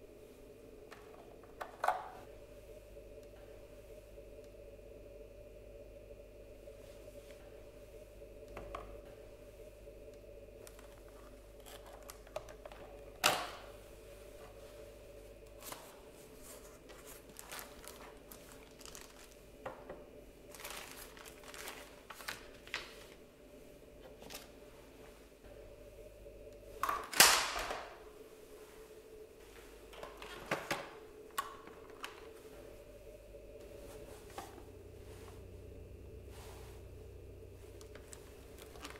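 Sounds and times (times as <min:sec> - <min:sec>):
packaging rustling: 0:10.7 - 0:13.0, 0:15.5 - 0:19.7, 0:20.4 - 0:23.2, 0:24.1 - 0:24.6, 0:37.7 - 0:38.9.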